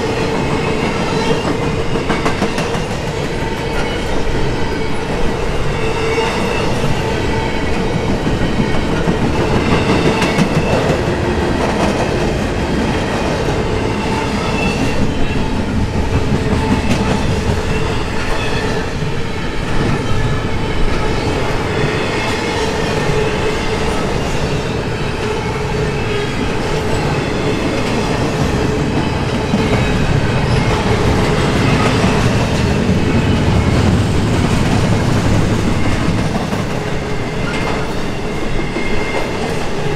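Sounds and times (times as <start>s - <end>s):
steel wheels clattering on rails: 0.0s - 24.6s
freight train rolling past: 0.0s - 39.9s.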